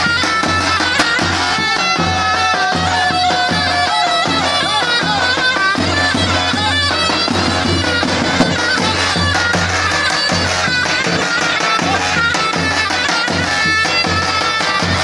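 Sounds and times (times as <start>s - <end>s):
wavering reed pipe melody: 0.0s - 15.0s
bass drum beat: 7.4s - 9.6s.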